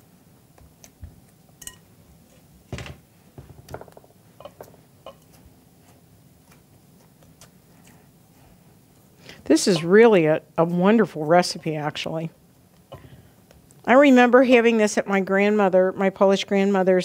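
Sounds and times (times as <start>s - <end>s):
spatula tapping glass dish: 4.4s - 5.3s.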